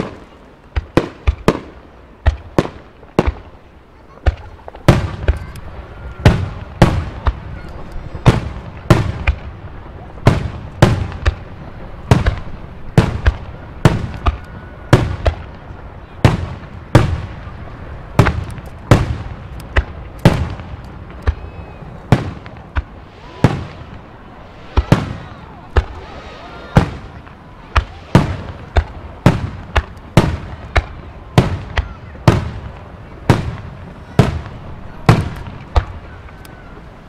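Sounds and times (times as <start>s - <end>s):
firework bangs with echo: 0.0s - 3.6s, 4.2s - 36.4s
faint firework whistle: 5.2s - 6.6s, 13.4s - 15.5s, 21.1s - 28.9s.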